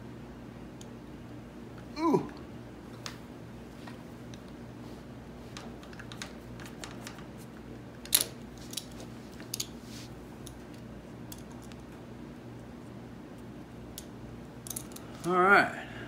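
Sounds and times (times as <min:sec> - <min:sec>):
steady low hum: 0:00.0 - 0:16.0
metallic clicks and clinks: 0:14.6 - 0:15.1.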